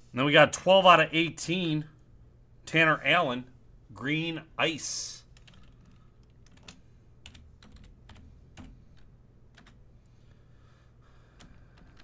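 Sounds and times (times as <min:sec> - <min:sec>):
low steady hum: 0:00.0 - 0:12.0
keyboard typing: 0:05.3 - 0:09.8.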